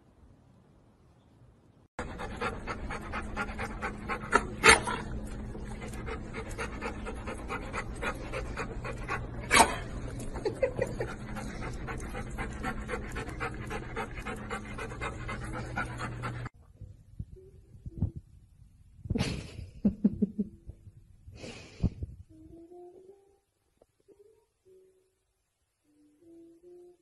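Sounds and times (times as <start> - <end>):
dog panting: 2.0 - 16.5.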